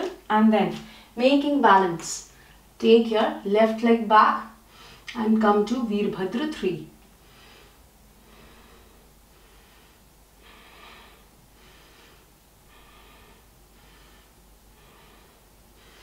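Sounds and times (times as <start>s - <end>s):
woman breathing softly: 7.2s - 16.0s.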